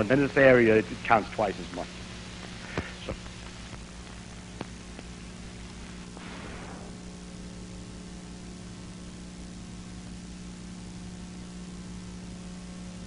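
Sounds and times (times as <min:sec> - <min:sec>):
electrical hum: 0:00.0 - 0:13.0
film soundtrack hiss: 0:00.0 - 0:13.0.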